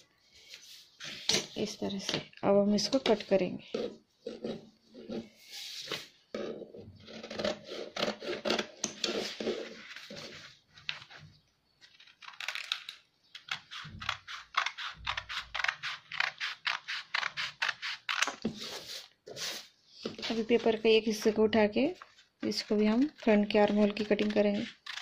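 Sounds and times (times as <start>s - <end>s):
scissors snipping paper: 12.0s - 18.4s, 22.4s - 25.0s.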